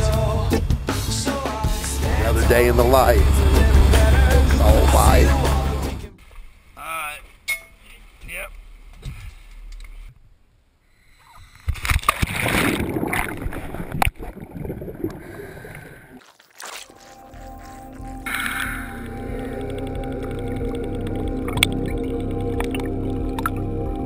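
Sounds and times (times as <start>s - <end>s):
underwater bubbling: 11.3s - 23.7s
water splashing and gurgling: 11.4s - 23.6s.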